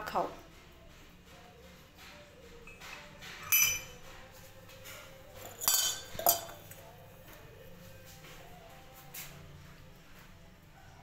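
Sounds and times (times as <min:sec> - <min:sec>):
metal spoon clinking on ceramic cup: 0:03.4 - 0:04.0, 0:05.4 - 0:06.8.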